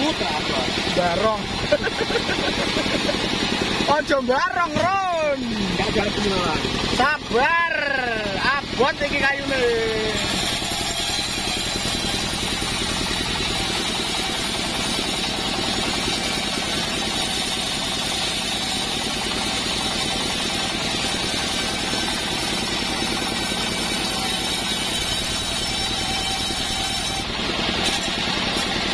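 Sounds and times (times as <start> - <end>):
sawmill engine hum: 0.0 - 28.9
saw blade hiss: 10.1 - 28.9.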